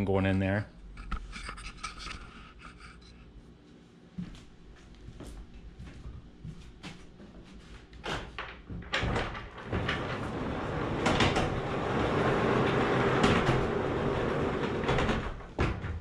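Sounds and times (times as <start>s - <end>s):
barn doors rolling shut: 8.1s - 16.0s.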